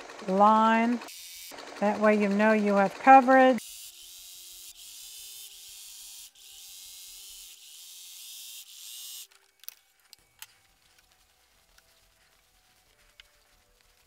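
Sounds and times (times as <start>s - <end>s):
sewing machine stitching: 0.0s - 3.6s.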